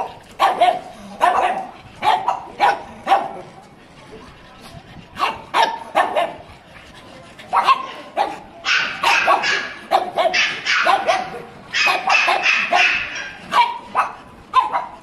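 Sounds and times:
dog barking sharply: 0:08.7 - 0:14.9.

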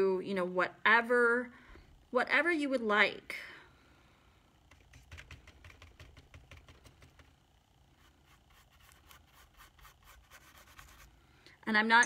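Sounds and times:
low room hum: 0:00.0 - 0:12.0
paintbrush scratching on canvas: 0:08.0 - 0:11.1.

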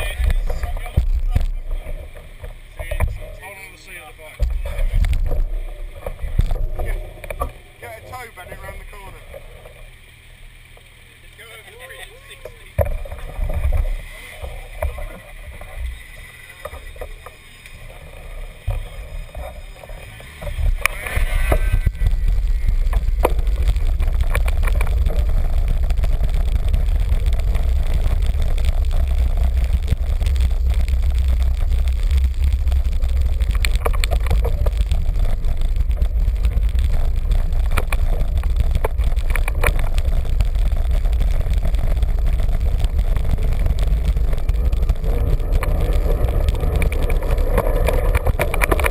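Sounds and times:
street noise: 0:00.0 - 0:48.9
bicycle clicks and rattles: 0:12.7 - 0:48.9
wind buffeting microphone: 0:18.0 - 0:48.9.

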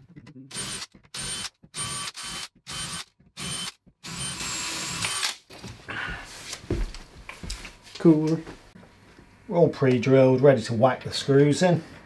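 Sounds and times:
power drill drilling into chipboard: 0:00.5 - 0:05.4.

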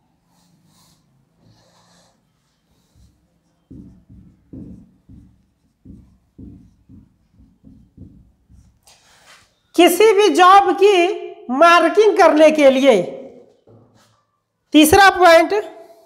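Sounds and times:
marker writing on whiteboard: 0:00.0 - 0:09.7.

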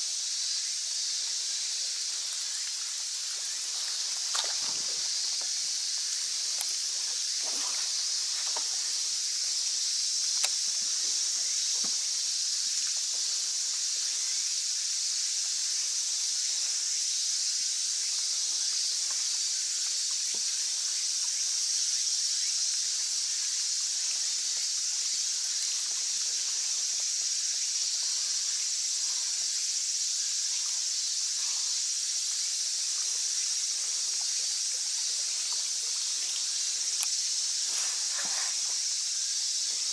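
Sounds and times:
insect chorus shrilling: 0:00.0 - 0:39.9
soft ticks: 0:37.0 - 0:37.2.

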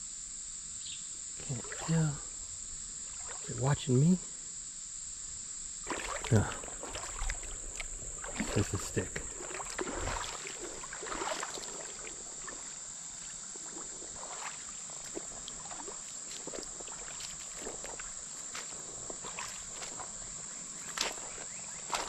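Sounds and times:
insects buzzing: 0:00.0 - 0:22.0
rustling and footsteps: 0:05.9 - 0:22.0.

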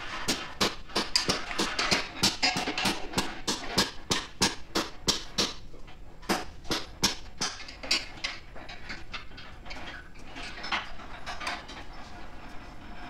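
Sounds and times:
sharp knocks and taps on metal: 0:00.3 - 0:05.6.

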